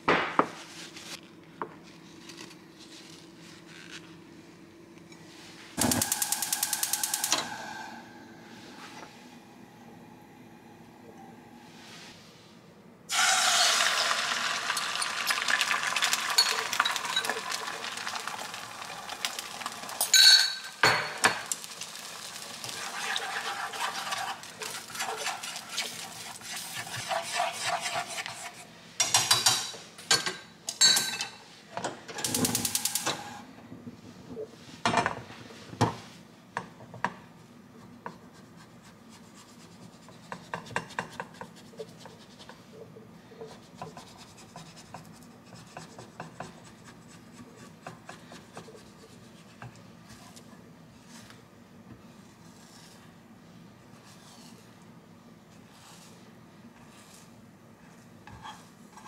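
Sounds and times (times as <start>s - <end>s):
utensils scraping egg in a frying pan: 14.7s - 20.0s, 21.4s - 28.7s, 52.1s - 53.1s, 56.8s - 59.0s.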